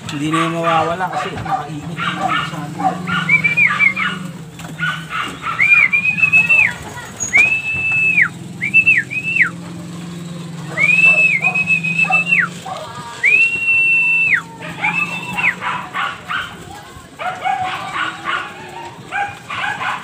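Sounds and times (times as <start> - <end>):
person whistling: 3.3 - 4.0, 5.6 - 9.6, 10.7 - 12.5, 13.2 - 15.5.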